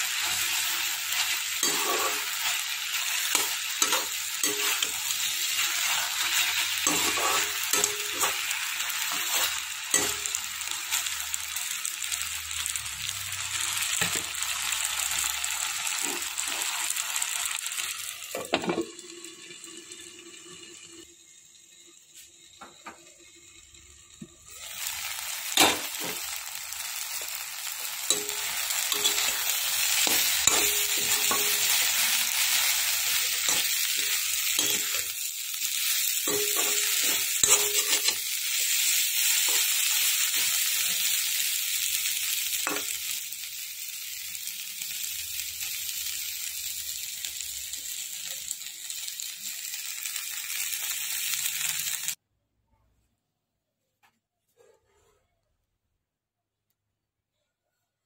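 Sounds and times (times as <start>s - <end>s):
vegetables sizzling in oil: 0.0s - 52.2s
spoon scraping and knocking pan: 1.2s - 10.4s, 28.1s - 32.5s, 33.4s - 35.1s, 36.2s - 38.3s.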